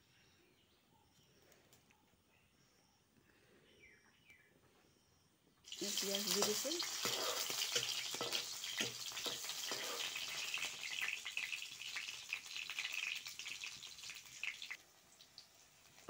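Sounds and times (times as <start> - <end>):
onions sizzling in hot oil: 5.7 - 16.0.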